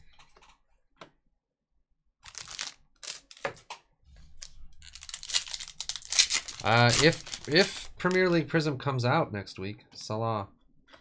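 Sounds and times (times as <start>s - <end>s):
foil wrapper crinkling: 2.3s - 3.4s, 4.8s - 8.3s.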